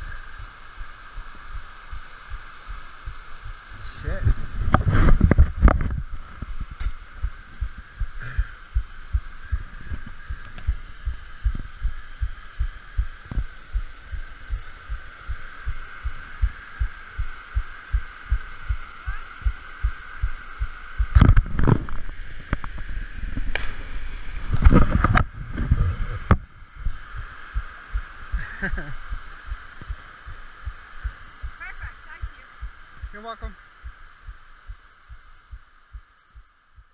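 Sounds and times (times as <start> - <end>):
rushes of noise: 0.0 - 31.6
steady high hiss: 0.0 - 36.9.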